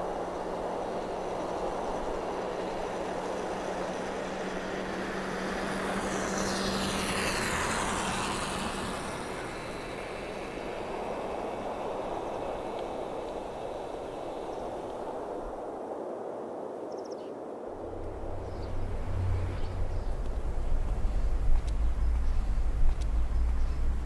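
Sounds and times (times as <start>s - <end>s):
motorcycle passing by: 3.0s - 12.2s, 17.8s - 24.0s
steady low hum: 17.6s - 24.0s.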